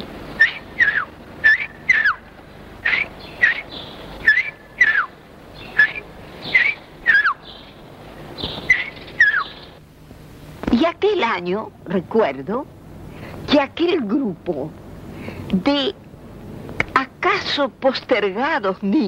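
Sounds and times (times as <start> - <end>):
person whistling birdsong: 0.4 - 2.2, 2.9 - 5.1, 5.8 - 7.5, 8.7 - 9.5.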